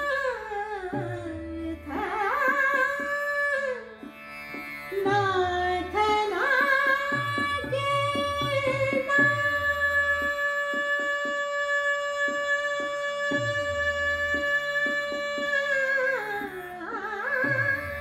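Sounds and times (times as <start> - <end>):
woman singing: 0.0 - 3.8, 5.0 - 17.8
tanpura drone: 0.0 - 18.0.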